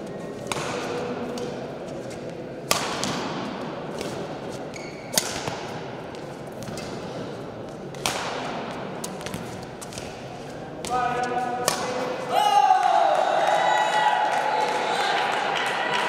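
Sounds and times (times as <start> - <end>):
background murmur: 0.0 - 12.9
rackets hitting shuttlecock: 0.4 - 12.3.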